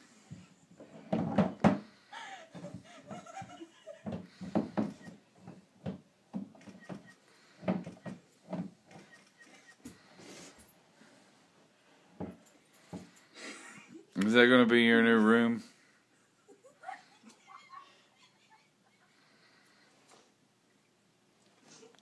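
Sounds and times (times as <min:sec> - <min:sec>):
plastic bumping on plastic: 0:03.4 - 0:08.8.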